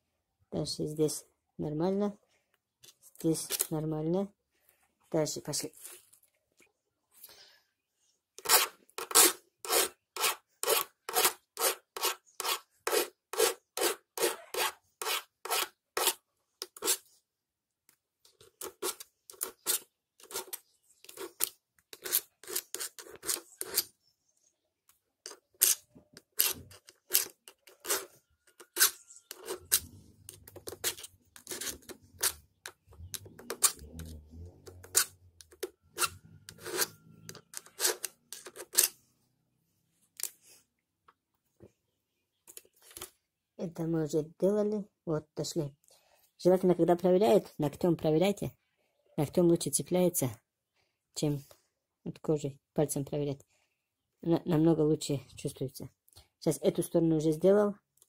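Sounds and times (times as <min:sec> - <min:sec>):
file scraping chainsaw chain: 0:08.4 - 0:17.1, 0:18.6 - 0:23.9, 0:25.6 - 0:32.4, 0:33.5 - 0:39.0.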